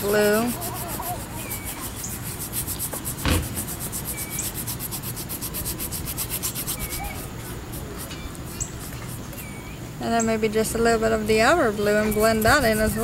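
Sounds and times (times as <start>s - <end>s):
paintbrush scrubbing on canvas: 0.0s - 9.6s, 11.5s - 13.0s
thump: 3.2s - 3.7s.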